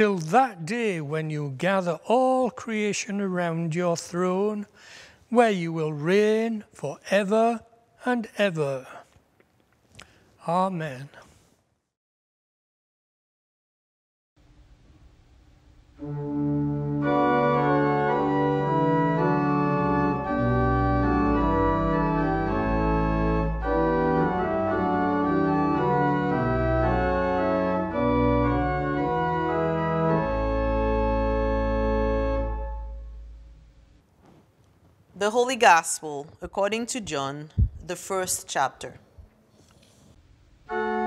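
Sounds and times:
church organ playing chords: 15.9s - 33.6s, 40.6s - 41.0s.

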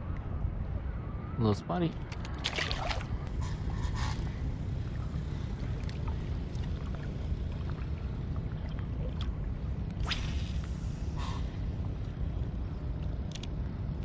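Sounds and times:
water moving: 2.0s - 3.3s, 4.9s - 10.1s
fish splashing into water: 2.2s - 3.1s.

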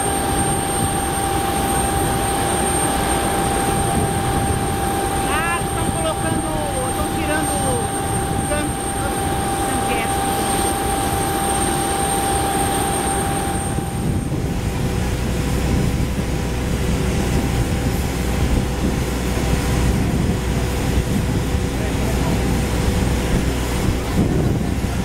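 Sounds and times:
aircraft engine rumble and whine: 0.0s - 25.0s.

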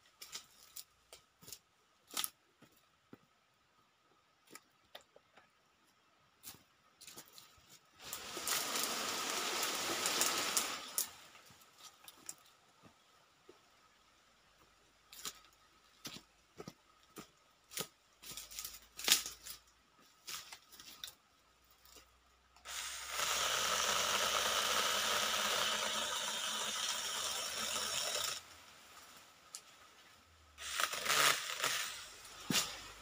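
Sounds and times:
footsteps on dry palm fronds: 16.0s - 21.2s, 32.3s - 33.0s
mini chainsaw cutting stick: 22.7s - 28.4s, 30.6s - 33.0s.

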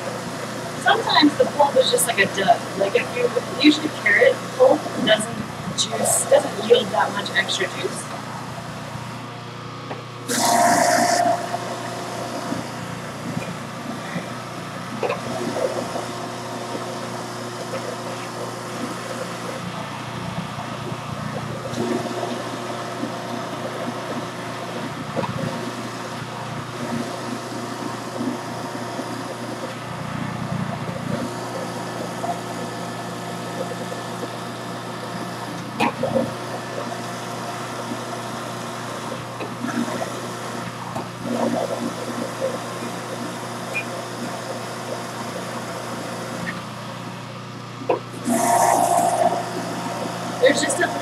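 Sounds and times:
electric juicer motor hum: 8.0s - 51.0s.

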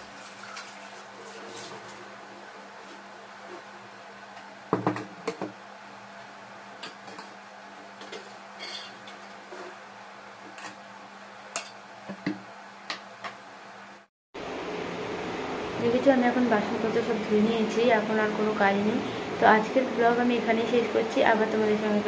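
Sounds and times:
metal utensils clinking: 8.0s - 9.2s.

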